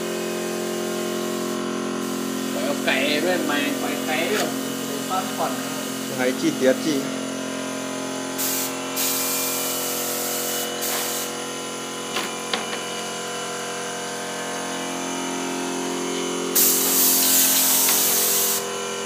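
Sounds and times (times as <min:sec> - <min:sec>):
air spray gun hissing: 0:00.0 - 0:07.1, 0:08.3 - 0:11.5, 0:16.4 - 0:18.7
air compressor humming: 0:00.0 - 0:19.0.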